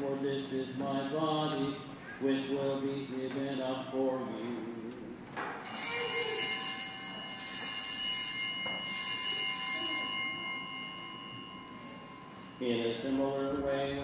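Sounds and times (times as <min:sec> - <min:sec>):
small bells ringing: 0:05.6 - 0:14.0.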